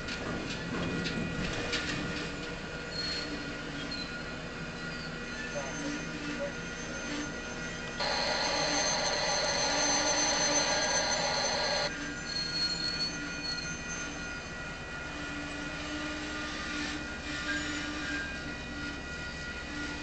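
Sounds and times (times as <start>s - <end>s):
train moving slowly: 0.0s - 20.0s
loud steady hiss: 8.0s - 11.9s.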